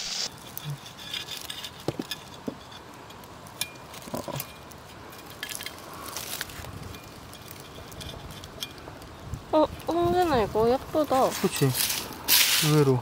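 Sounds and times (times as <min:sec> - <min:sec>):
trowel scraping dry soil: 0:00.0 - 0:02.9.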